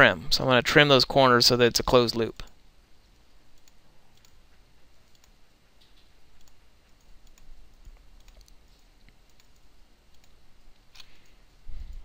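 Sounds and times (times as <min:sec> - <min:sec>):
computer mouse clicks: 0:03.5 - 0:12.0.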